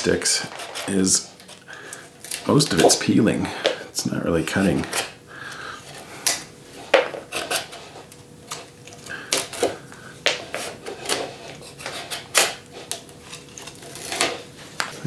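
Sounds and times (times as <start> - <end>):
knife scraping bark off stick: 10.6 - 14.4.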